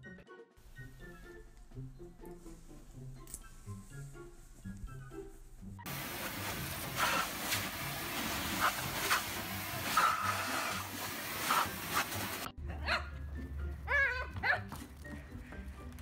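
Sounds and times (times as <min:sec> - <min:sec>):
pet dryer rushing hiss: 0:05.9 - 0:12.5.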